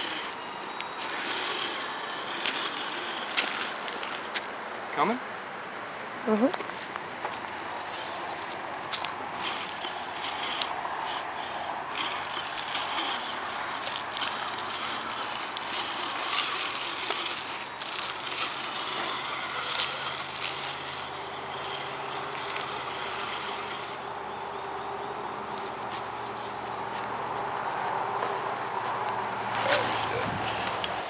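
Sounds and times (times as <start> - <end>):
small electric motor and gears: 0.0 - 4.5, 7.8 - 24.2
crunch of stones: 0.0 - 4.6, 8.4 - 24.1.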